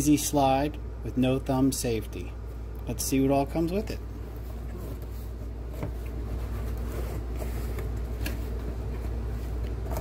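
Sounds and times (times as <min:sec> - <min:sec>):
steady low hum: 0:00.0 - 0:10.0
cardboard rubbing and sliding: 0:04.6 - 0:10.0.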